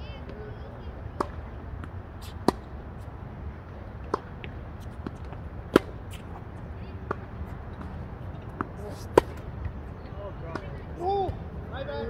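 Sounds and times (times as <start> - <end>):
rackets striking tennis ball: 1.2 - 2.8, 3.7 - 9.8, 10.4 - 11.4
tennis ball bouncing: 1.2 - 11.4.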